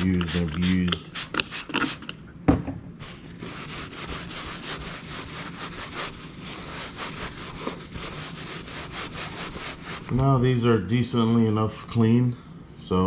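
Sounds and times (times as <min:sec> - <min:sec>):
cloth scrubbing armrest: 0:03.3 - 0:10.3.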